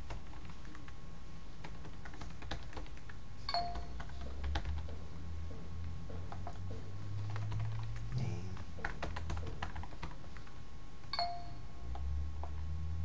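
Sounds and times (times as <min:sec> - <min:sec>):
low steady hum: 0:00.0 - 0:13.0
brief ding: 0:11.2 - 0:11.6.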